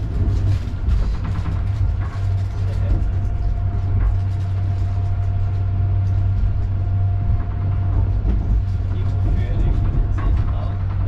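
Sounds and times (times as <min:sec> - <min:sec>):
vehicle rumble and hum: 0:00.0 - 0:11.0.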